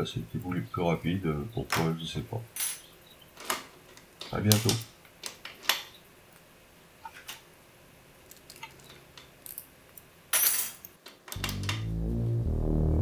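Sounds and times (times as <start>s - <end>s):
synthesizer music: 11.4s - 13.0s.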